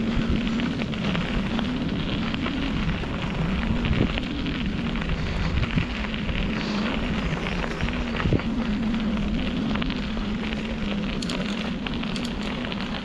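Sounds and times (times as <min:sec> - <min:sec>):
bicycle tyres crackling on dirt: 0:00.0 - 0:13.0
low wavering hum: 0:00.0 - 0:13.0.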